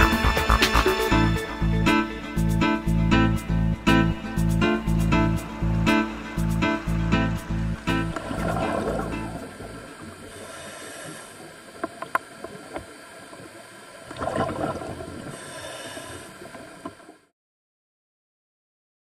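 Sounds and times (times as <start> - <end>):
underwater wash: 5.0 - 17.2
diver's exhaled bubbles: 8.2 - 9.5, 14.1 - 15.1
sharp clicks underwater: 11.8 - 12.9.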